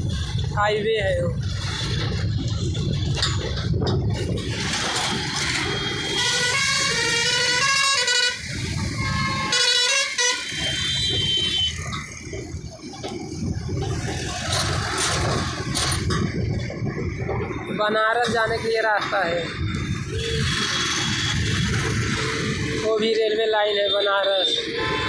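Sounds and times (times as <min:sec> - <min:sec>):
rumble of engines and tyres: 0:00.0 - 0:25.0
vehicle horns honking: 0:05.6 - 0:11.9, 0:24.2 - 0:25.0.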